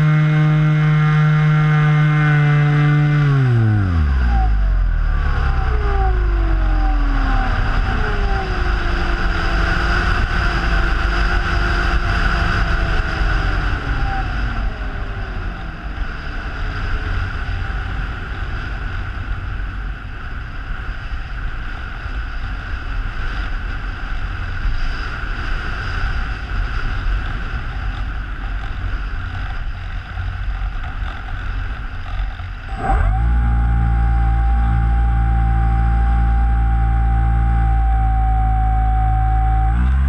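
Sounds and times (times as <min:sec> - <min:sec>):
electric motor and propeller whine: 0:00.0 - 0:40.0.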